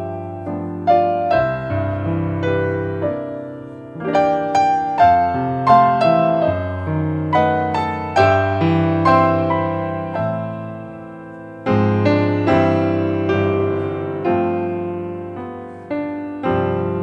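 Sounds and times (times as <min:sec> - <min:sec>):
slow piano music: 0:00.0 - 0:17.0.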